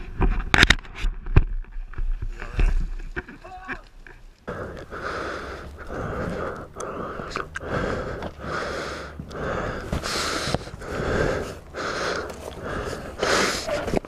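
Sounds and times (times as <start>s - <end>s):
rapid heavy breathing: 4.4s - 14.0s.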